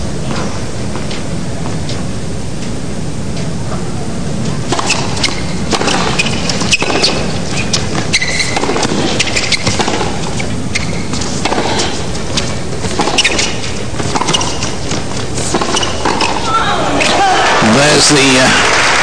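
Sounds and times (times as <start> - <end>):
shoe squeaks on court: 4.7 - 11.6, 12.3 - 17.2
tennis ball strikes: 4.7 - 11.7, 12.8 - 16.5.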